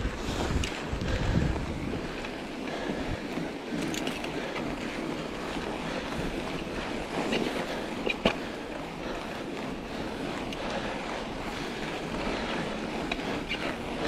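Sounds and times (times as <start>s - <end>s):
wind on microphone: 0.0s - 4.5s
bike tyres rolling over snow: 0.0s - 14.0s.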